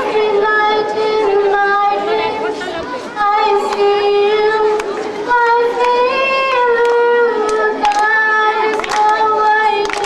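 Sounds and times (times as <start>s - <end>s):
high singing voice: 0.0s - 10.0s.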